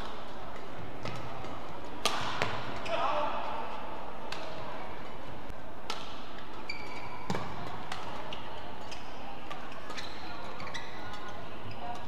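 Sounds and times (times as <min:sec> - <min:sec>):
rackets hitting shuttlecock: 0:00.0 - 0:02.8, 0:05.8 - 0:06.6, 0:07.2 - 0:08.2
shoes squeaking on court: 0:06.5 - 0:12.0.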